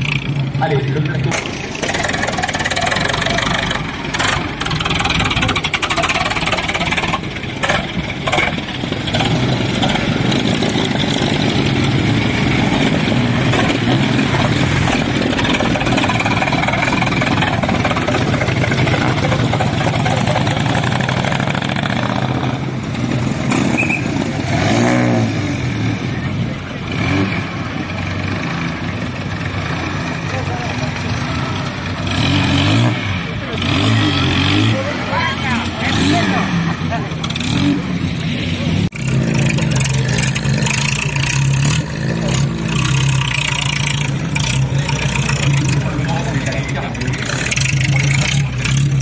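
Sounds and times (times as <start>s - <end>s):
vehicle engine running: 0.0s - 49.0s.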